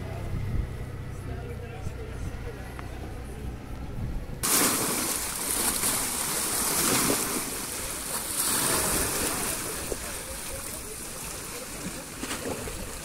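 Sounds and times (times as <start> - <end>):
waves splashing against concrete: 4.4 - 13.0.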